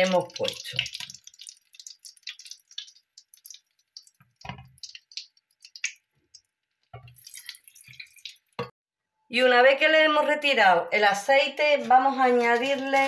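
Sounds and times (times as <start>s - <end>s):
oil dripping: 0.0s - 8.8s.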